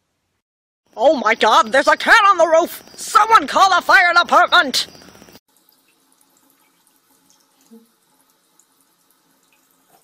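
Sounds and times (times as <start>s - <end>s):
faint water trickle from faucet: 5.5s - 10.0s.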